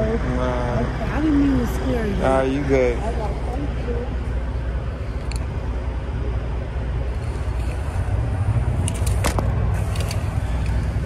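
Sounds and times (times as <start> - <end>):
diesel truck engine idling: 0.0 - 11.0
light metallic clicks and rattles: 5.2 - 5.5.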